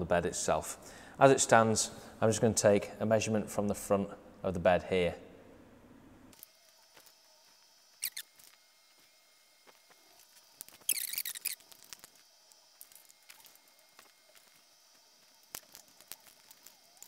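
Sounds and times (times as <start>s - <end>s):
squeaky metal rasp: 8.0s - 8.2s, 10.9s - 11.6s.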